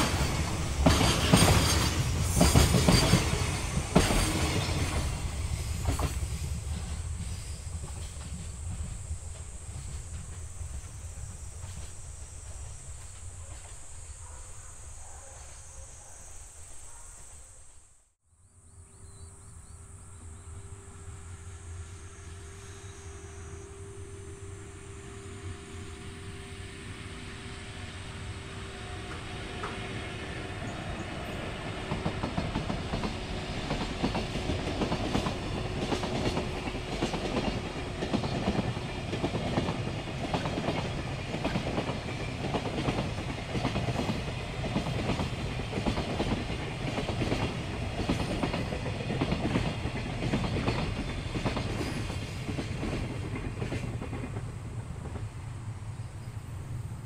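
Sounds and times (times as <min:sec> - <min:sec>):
train wheels clacking over rail joints: 0:00.0 - 0:12.0, 0:31.6 - 0:55.3
train rumble: 0:00.0 - 0:16.0, 0:19.8 - 0:57.0.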